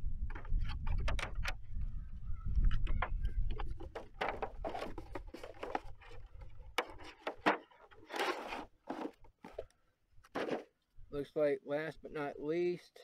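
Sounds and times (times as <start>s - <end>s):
plastic tray handled in cardboard box: 3.7s - 9.6s.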